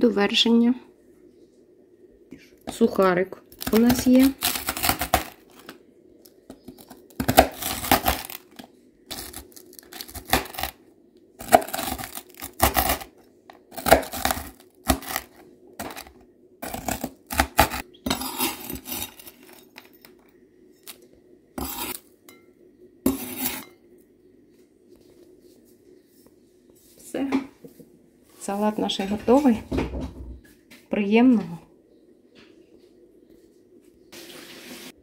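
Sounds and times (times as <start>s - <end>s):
knife chopping bread on board: 3.6s - 5.4s, 6.6s - 8.4s, 11.4s - 13.1s, 13.7s - 19.1s.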